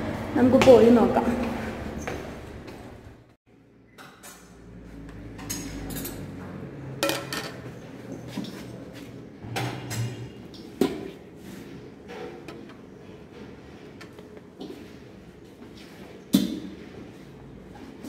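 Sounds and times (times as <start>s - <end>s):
dishes and cutlery clinking: 5.3s - 8.6s.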